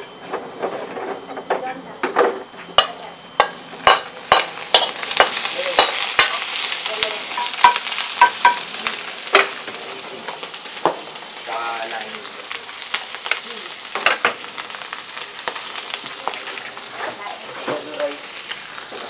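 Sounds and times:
spatula clacking on pan: 2.8 - 6.4, 7.4 - 8.6
food sizzling: 2.8 - 19.0.

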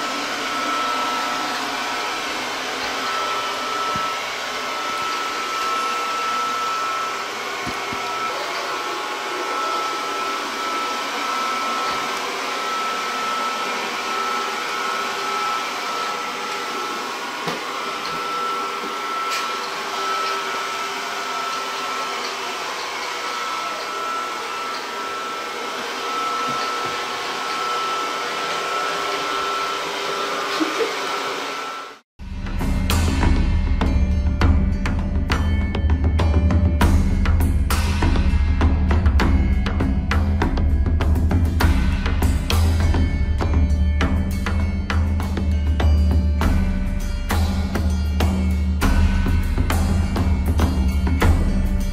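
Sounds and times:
robot vacuum cleaner whirring: 0.0 - 32.0.

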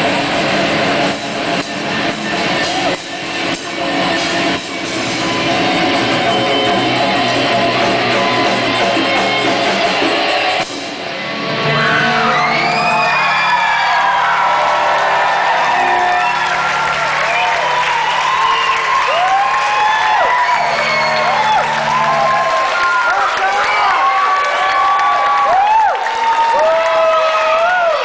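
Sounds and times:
live rock band playing: 0.0 - 12.6.

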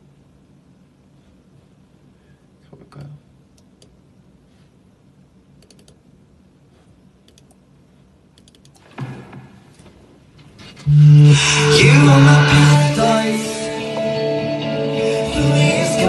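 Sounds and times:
brief low sound: 10.8 - 13.4.

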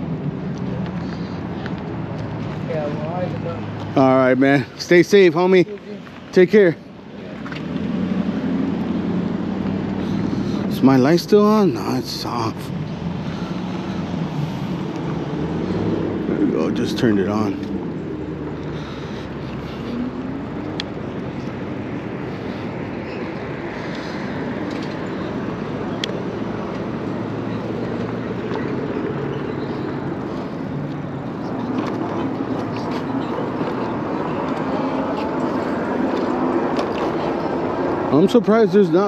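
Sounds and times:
background traffic: 0.0 - 39.0
wind and road noise: 0.0 - 39.0.

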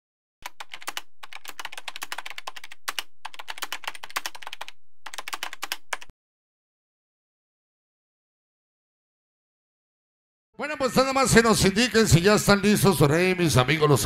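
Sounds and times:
rapid keyboard typing: 0.4 - 6.1.

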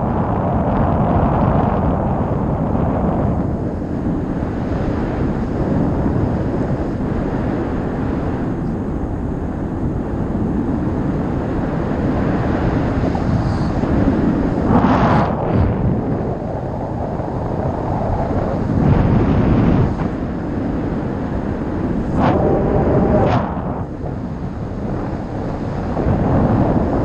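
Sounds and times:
wind buffeting microphone: 0.0 - 27.0.

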